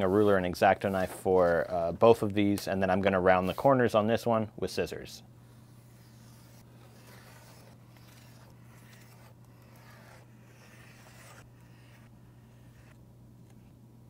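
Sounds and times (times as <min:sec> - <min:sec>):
steady low hum: 0:00.0 - 0:14.0
knife slicing paper: 0:05.9 - 0:13.0.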